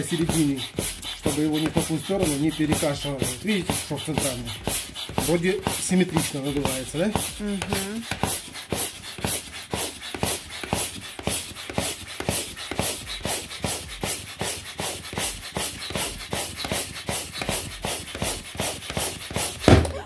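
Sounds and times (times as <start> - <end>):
air pump puffing: 0.0 - 20.0
balloon bursting with a bang: 19.6 - 20.0.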